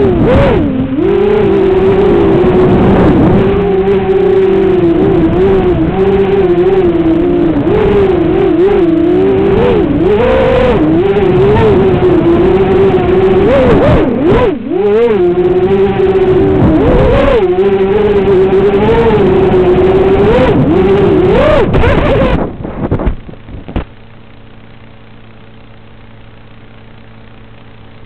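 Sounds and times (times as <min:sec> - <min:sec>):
drone motors whining: 0:00.0 - 0:28.0
low steady hum: 0:00.0 - 0:28.0
drone crashing into grass: 0:21.6 - 0:24.0.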